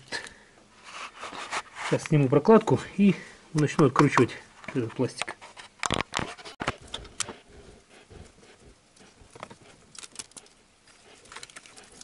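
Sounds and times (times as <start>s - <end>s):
clicks and rustles of hands: 8.2s - 12.0s.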